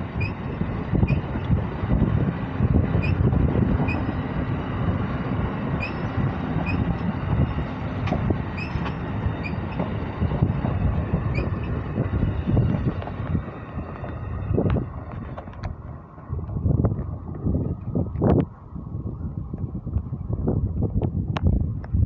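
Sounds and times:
train wheels rumbling on rail: 0.0 - 22.0
short high squeaks: 0.2 - 1.3, 3.0 - 4.2, 5.8 - 7.1, 8.5 - 9.9, 11.2 - 11.8.

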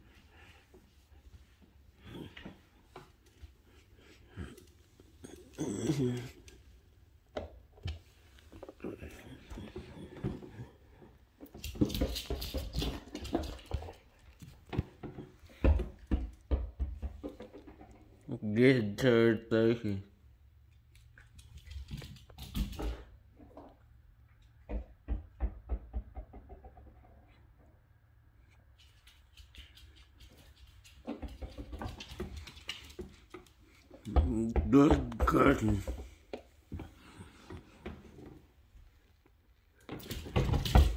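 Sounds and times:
dog claws tapping on hard floor: 11.5 - 18.0, 28.8 - 37.1.

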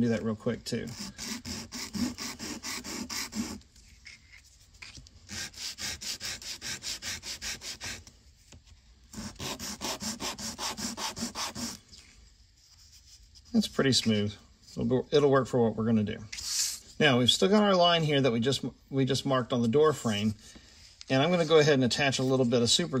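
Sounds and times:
wood rubbed on sandpaper: 0.8 - 4.2, 5.3 - 8.1, 9.2 - 13.7.

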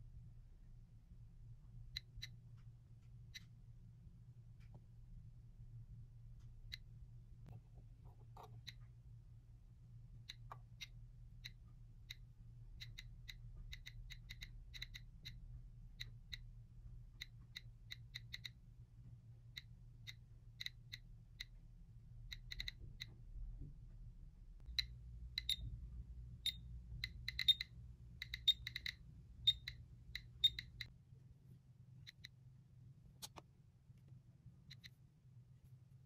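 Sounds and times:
geiger counter clicking: 8.2 - 8.9, 10.2 - 18.7, 19.4 - 21.6, 22.2 - 23.2, 24.6 - 25.8, 26.4 - 30.9, 34.7 - 35.0.

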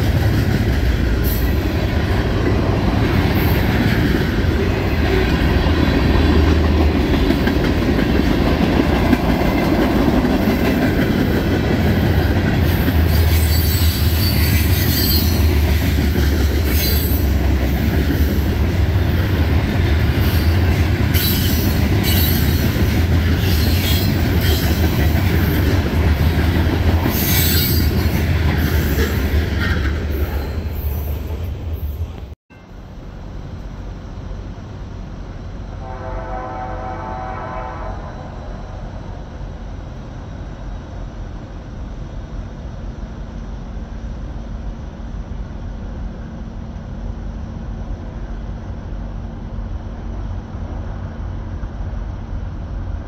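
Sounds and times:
train wheels rumbling on rail: 0.0 - 53.0
high wheel squeal: 13.1 - 15.5, 16.7 - 17.4.

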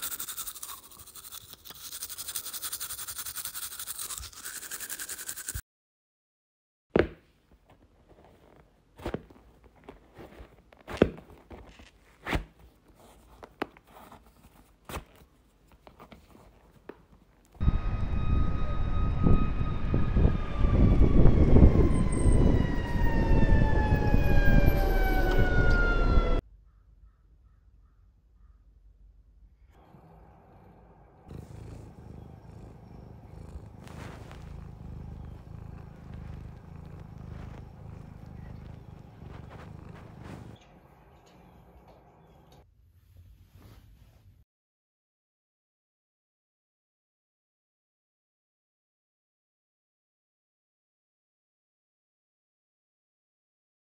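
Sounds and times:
shoe thumps and knocks: 6.9 - 7.4
soft rustling: 7.4 - 17.6, 32.3 - 40.6
cat purring: 29.8 - 42.6.

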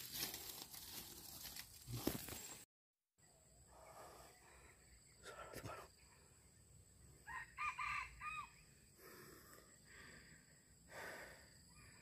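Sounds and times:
rooster crowing: 7.2 - 8.7.

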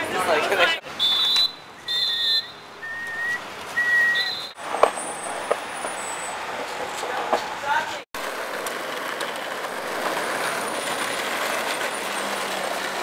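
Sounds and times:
street noise: 0.0 - 13.0
shrill whistle blasts: 1.0 - 4.6.

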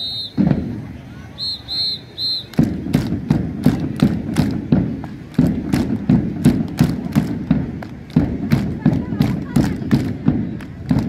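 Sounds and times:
whistle blast: 0.0 - 0.6, 1.3 - 2.6
drum beating marching time: 0.0 - 1.0, 1.6 - 11.0.

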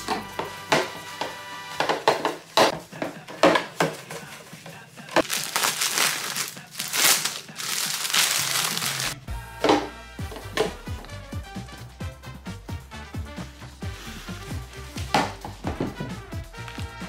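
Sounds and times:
plastic wrapping crinkling: 3.7 - 9.2.

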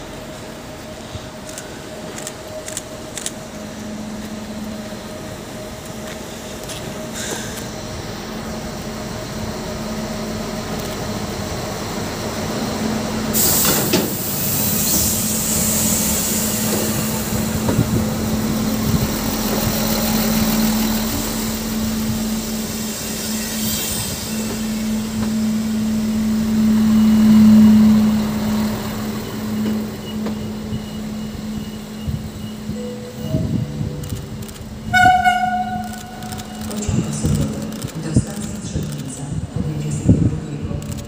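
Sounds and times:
train engine hum: 0.0 - 41.0
air hiss: 13.3 - 17.5.

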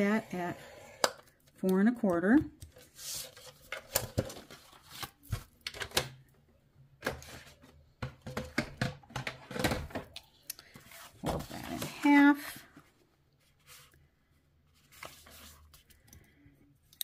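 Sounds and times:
paper scraping and rustling: 14.8 - 15.8.

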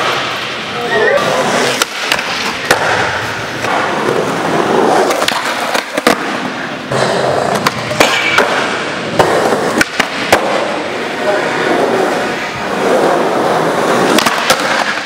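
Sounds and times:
skateboard wheels rolling: 0.0 - 15.0
skateboard clacking on concrete: 1.6 - 11.1, 12.6 - 15.0.

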